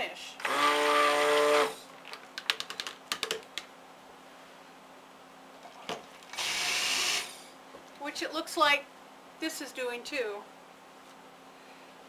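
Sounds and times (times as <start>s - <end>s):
stick blender motor running: 0.4s - 1.8s, 6.3s - 7.5s.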